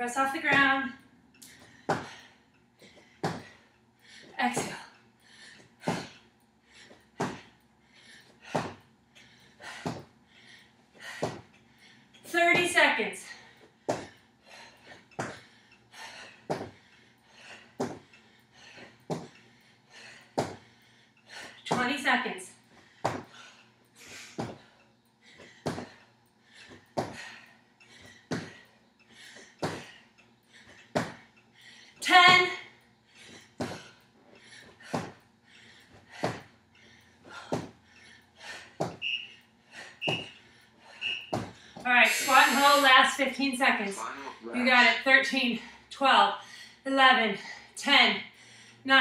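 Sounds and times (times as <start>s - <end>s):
soft breathing: 0.6s - 21.7s, 22.5s - 44.8s, 45.4s - 49.0s
feet landing: 1.6s - 2.2s, 2.9s - 3.6s, 7.2s - 7.5s, 8.4s - 8.8s, 9.6s - 10.1s, 11.0s - 11.5s, 16.5s - 16.8s, 23.0s - 23.4s, 24.4s - 24.7s, 25.4s - 26.0s, 26.6s - 27.4s, 28.0s - 28.6s, 29.2s - 30.0s, 30.7s - 31.3s, 33.6s - 34.0s, 34.7s - 35.2s, 36.0s - 36.5s, 37.3s - 37.8s, 38.7s - 39.2s, 40.0s - 40.4s, 41.1s - 41.9s
forceful exhale: 42.0s - 43.0s.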